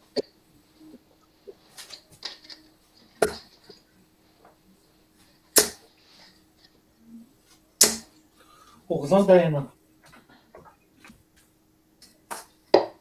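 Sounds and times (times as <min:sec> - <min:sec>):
darts thudding into dartboard: 0:05.6 - 0:05.8, 0:07.8 - 0:08.1, 0:12.3 - 0:13.0.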